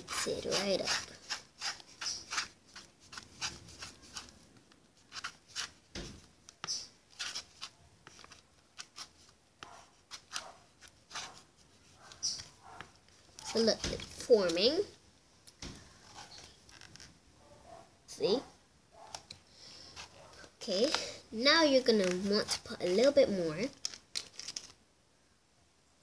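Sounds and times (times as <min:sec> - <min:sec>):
spoon scraping slime in a bowl: 0:00.0 - 0:04.4.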